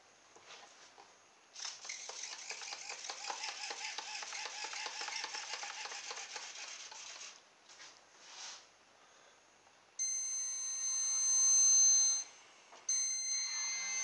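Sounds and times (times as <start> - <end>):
electric motor propeller whir: 1.6 - 7.4, 13.4 - 14.0.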